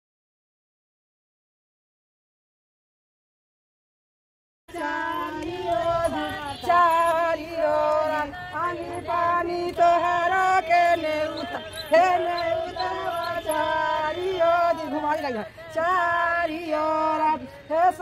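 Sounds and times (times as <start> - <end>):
woman singing: 4.7 - 18.0.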